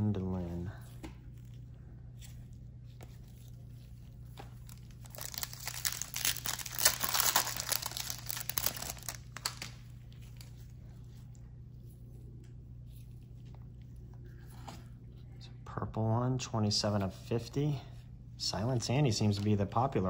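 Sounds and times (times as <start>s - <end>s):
cards rustling: 2.3s - 10.6s
foil wrapper crinkling: 3.5s - 10.6s.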